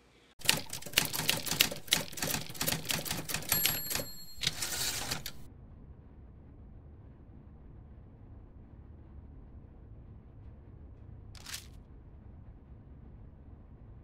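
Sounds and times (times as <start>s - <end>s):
rapid irregular clicking: 0.4s - 5.5s.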